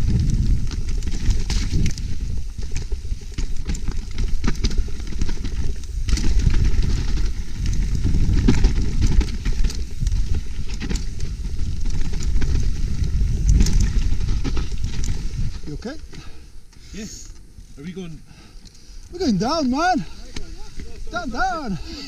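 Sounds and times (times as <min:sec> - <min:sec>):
wind on microphone: 0:00.0 - 0:15.9
bike clicking and rattling: 0:00.0 - 0:22.0
tyres rumbling on trail: 0:00.0 - 0:22.0.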